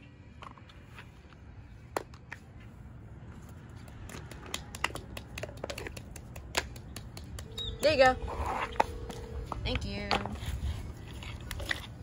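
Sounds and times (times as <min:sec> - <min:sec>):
plastic toys tapping on concrete: 0:03.8 - 0:07.9.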